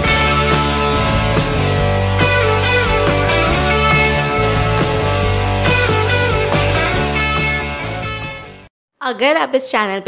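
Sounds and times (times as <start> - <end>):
instrumental music with held notes: 0.0 - 8.7.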